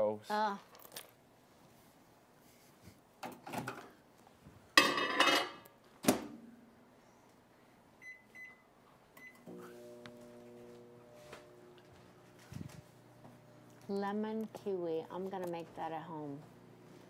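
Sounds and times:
dishes and pan clattering: 4.8 - 5.7
microwave oven humming: 8.0 - 14.8, 15.8 - 17.0.

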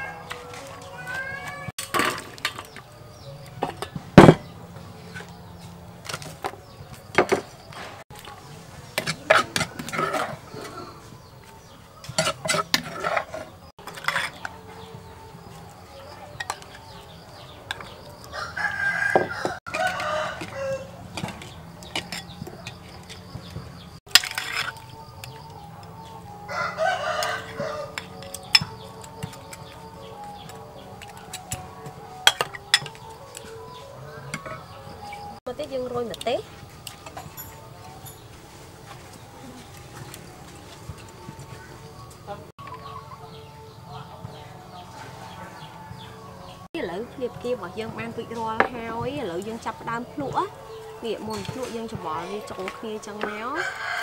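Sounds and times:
rooster crowing: 16.8 - 22.8, 25.0 - 31.0, 53.3 - 54.0.

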